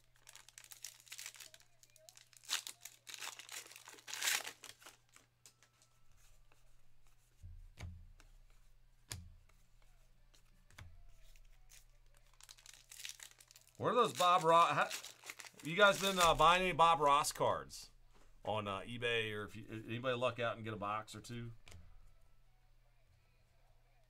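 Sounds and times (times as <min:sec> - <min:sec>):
wrapper tearing and crinkling: 0:00.0 - 0:05.6, 0:11.6 - 0:16.5.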